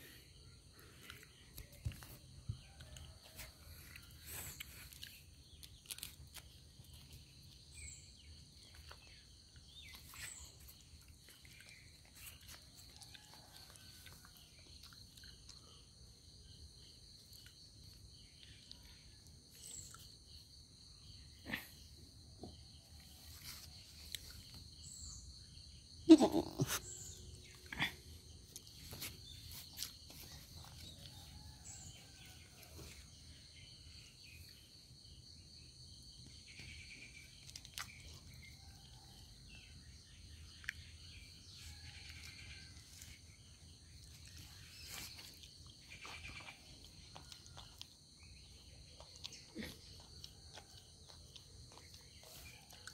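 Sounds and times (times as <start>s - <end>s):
faint chirps and clicks: 1.0s - 15.8s, 40.5s - 43.2s.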